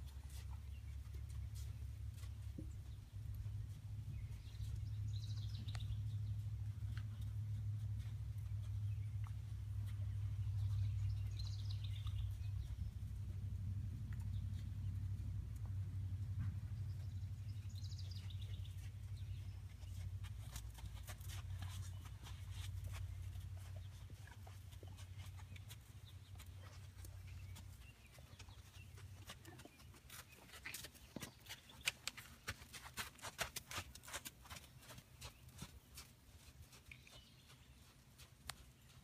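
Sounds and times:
low hum: 0.0s - 29.6s
bird chirping: 4.1s - 6.5s, 8.0s - 13.1s, 16.4s - 33.1s
hoof steps on sand: 18.1s - 39.0s.

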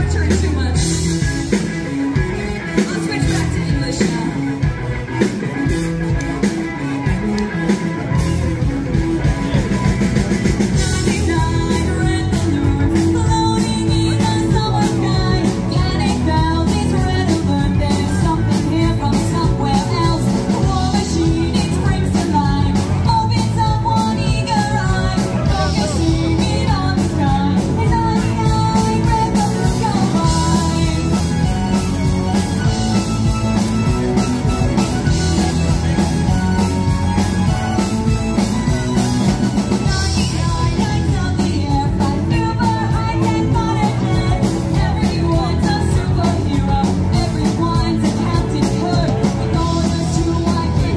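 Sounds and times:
electric guitars: 0.0s - 50.9s
live band playing: 0.0s - 50.9s
steady drum beat: 0.0s - 50.9s
person singing: 10.6s - 33.0s, 38.6s - 50.9s.

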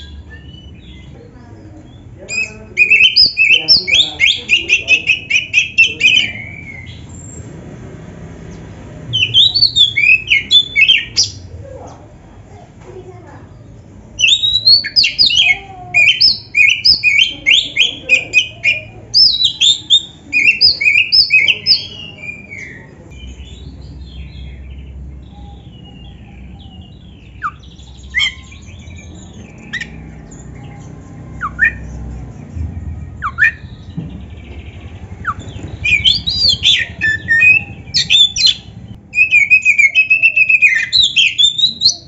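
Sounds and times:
bird singing: 0.0s - 12.2s, 13.2s - 42.0s.

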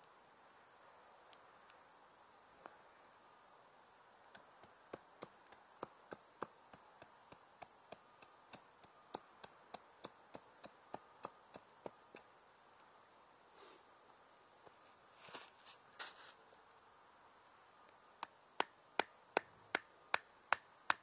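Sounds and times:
wooden stick ticking: 4.3s - 12.3s, 17.9s - 21.0s.

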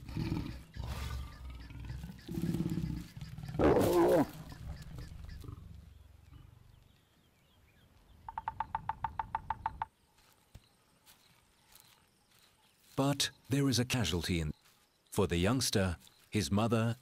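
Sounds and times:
lioness snarling: 0.0s - 4.5s
lions growling: 0.0s - 6.8s
woodpecker drumming on wood: 8.2s - 10.0s.

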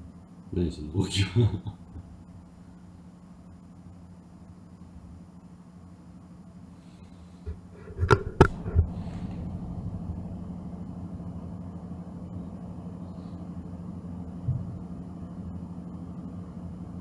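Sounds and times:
low room hum: 0.0s - 17.0s
sharp knocks: 7.5s - 9.5s.

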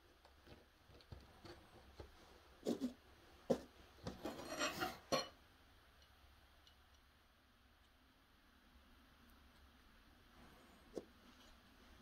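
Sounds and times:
wood and metal scraping: 2.6s - 5.3s.

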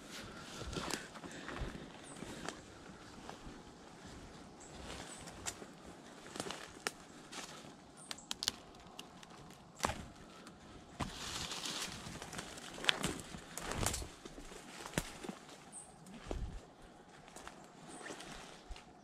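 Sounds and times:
footsteps crunching through dry brush: 0.0s - 19.0s
twigs cracking: 5.0s - 19.0s.

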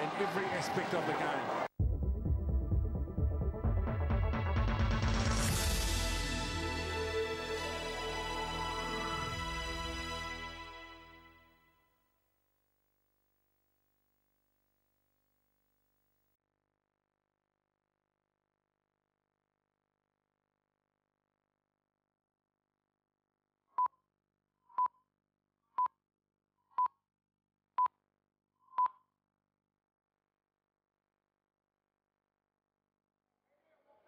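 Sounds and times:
electronic countdown beeps: 28.7s - 29.0s.

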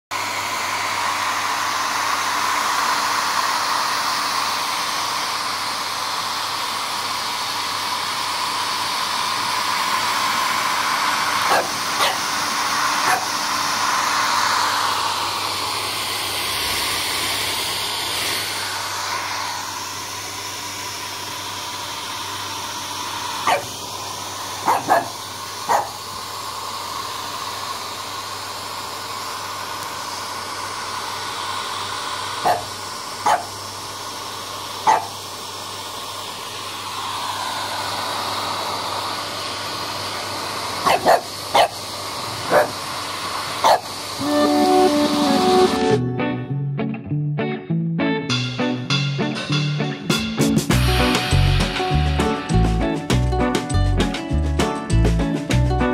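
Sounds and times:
hairdryer blowing: 0.0s - 46.1s, 50.7s - 53.8s
puppy barking: 11.5s - 12.3s, 13.0s - 13.3s, 23.4s - 23.7s, 24.6s - 26.0s, 32.4s - 33.5s, 34.8s - 35.1s, 40.8s - 41.8s, 42.4s - 42.8s, 43.6s - 43.9s.

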